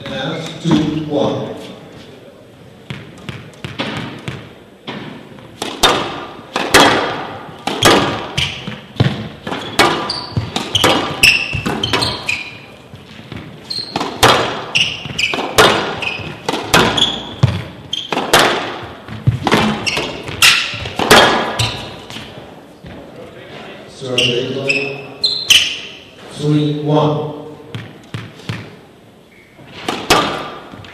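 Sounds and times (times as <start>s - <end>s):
squash ball cracks echoing: 2.9s - 12.2s, 13.0s - 22.0s, 29.8s - 30.9s
shoe squeaks on court floor: 8.3s - 18.2s, 19.6s - 22.3s, 24.0s - 26.0s.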